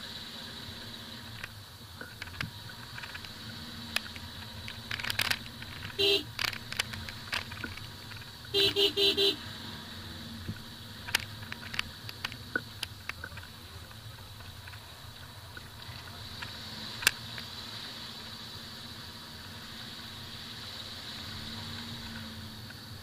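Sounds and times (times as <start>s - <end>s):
car engine and tyre rumble: 0.0s - 23.0s
sharp clicks and knocks: 1.3s - 8.4s, 10.5s - 17.5s.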